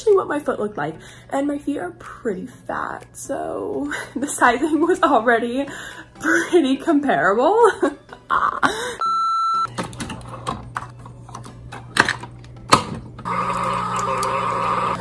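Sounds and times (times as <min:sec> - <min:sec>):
coffee brewer beep: 0:09.0 - 0:09.7, 0:13.2 - 0:15.0
coffee brewer humming: 0:12.3 - 0:15.0
coffee streaming into mug: 0:13.3 - 0:15.0.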